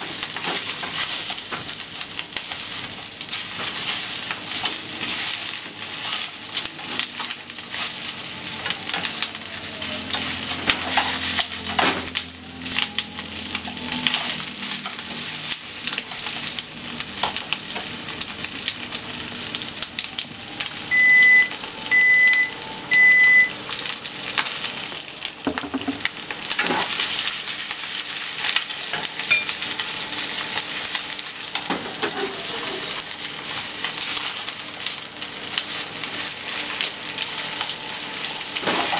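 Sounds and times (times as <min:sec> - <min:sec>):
chicken sizzling in frying oil: 0:00.0 - 0:38.9
short high electronic beeps: 0:20.9 - 0:23.5.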